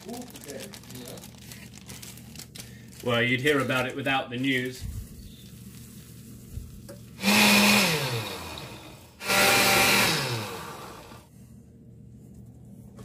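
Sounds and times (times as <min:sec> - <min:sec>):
blender motor pulsing: 0:07.2 - 0:11.3.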